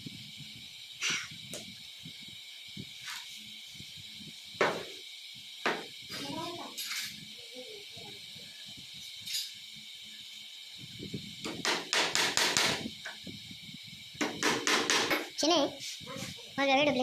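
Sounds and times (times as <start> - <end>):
hammer striking nails into board: 11.6 - 12.8, 14.2 - 15.3.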